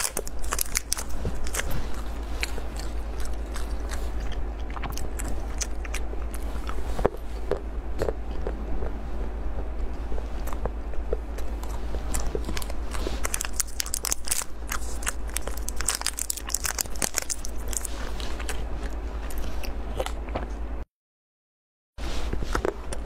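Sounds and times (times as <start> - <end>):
plastic wrapper crinkling: 0.0 - 2.2, 12.2 - 18.5
low hum: 0.0 - 20.8, 22.0 - 23.0.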